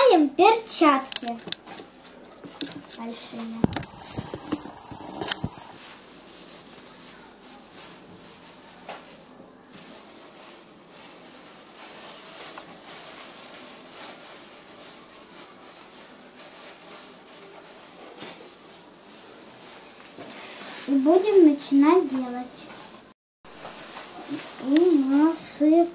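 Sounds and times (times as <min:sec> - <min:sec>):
plastic gloves crinkling: 0:00.0 - 0:25.9.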